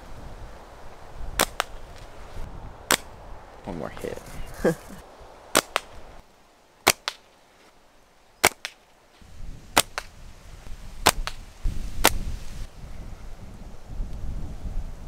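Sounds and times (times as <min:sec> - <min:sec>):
wind rumble on microphone: 0:00.0 - 0:06.2, 0:09.2 - 0:15.0
slingshot bands snapping: 0:01.4 - 0:02.1, 0:05.6 - 0:06.0, 0:06.9 - 0:07.3, 0:08.4 - 0:08.9, 0:11.0 - 0:12.2.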